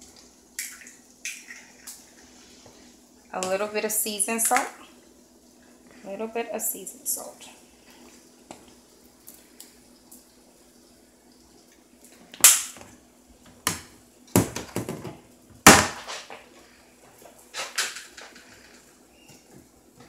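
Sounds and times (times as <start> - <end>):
kitchen items knocking and clattering: 13.6 - 16.5.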